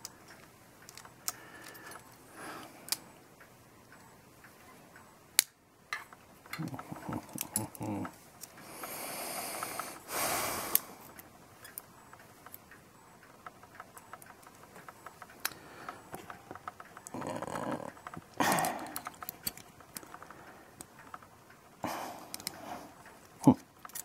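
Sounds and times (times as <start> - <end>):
small metal parts clicking: 0.0 - 2.2, 5.4 - 8.9, 10.7 - 24.0.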